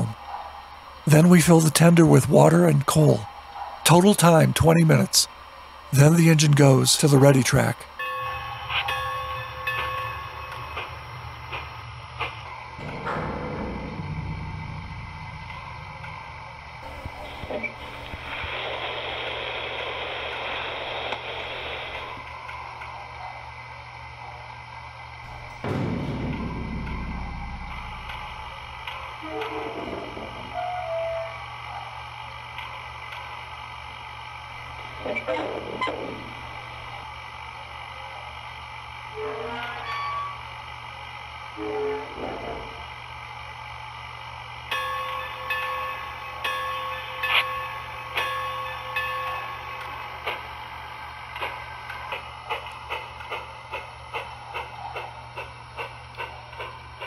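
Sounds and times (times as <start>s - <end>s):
steady low hum: 0.0s - 39.2s, 40.2s - 57.0s
low hum: 7.8s - 20.0s, 25.0s - 39.2s
hiss of coal pouring: 17.8s - 21.9s.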